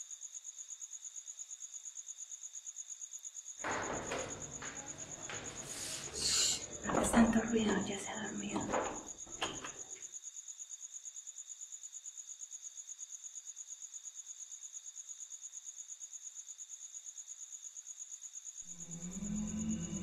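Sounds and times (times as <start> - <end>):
cricket chirping trill: 0.0 - 20.0
music: 18.6 - 20.0.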